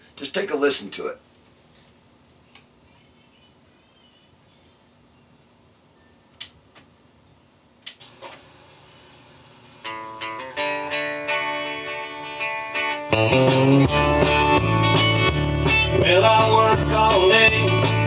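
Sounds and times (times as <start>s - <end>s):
recorded guitar song: 9.8s - 18.0s
bass and full band: 13.0s - 18.0s.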